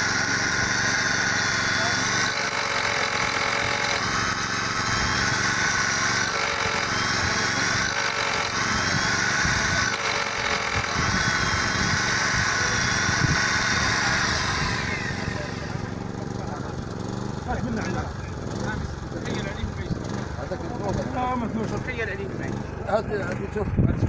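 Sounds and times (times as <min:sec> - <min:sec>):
electric drill boring into concrete: 0:00.0 - 0:16.1.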